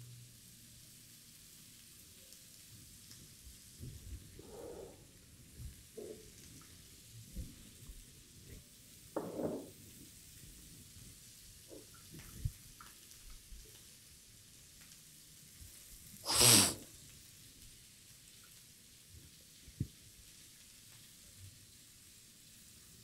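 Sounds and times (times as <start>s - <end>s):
frying sizzle in pan: 0.0s - 23.0s
short loud noise burst: 16.3s - 16.8s.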